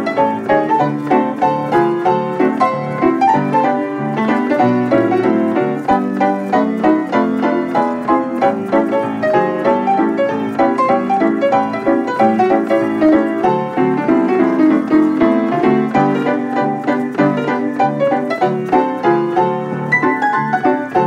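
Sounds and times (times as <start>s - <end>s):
player piano playing: 0.0s - 21.0s.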